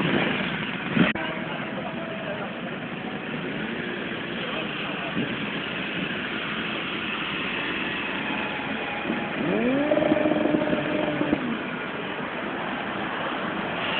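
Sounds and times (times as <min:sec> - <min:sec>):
traffic and road noise: 0:00.0 - 0:13.9
motorcycle engine accelerating: 0:05.2 - 0:11.9.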